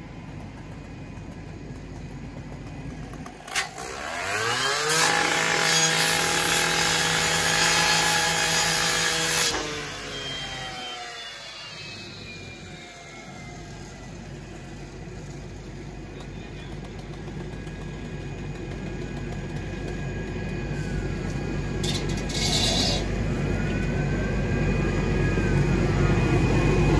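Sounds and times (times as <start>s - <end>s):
low engine rumble: 0.0s - 3.9s, 11.6s - 26.9s
fire engine pump tones: 9.9s - 26.9s.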